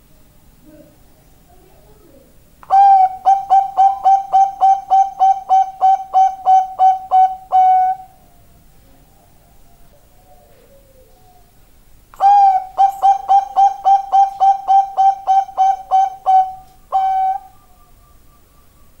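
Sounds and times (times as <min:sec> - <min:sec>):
dove cooing song: 0:02.6 - 0:19.0.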